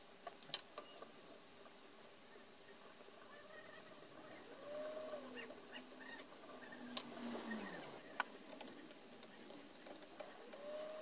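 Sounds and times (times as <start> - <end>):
low animal call: 3.2 - 8.0, 10.4 - 11.0
animal call rising and falling: 3.3 - 8.0.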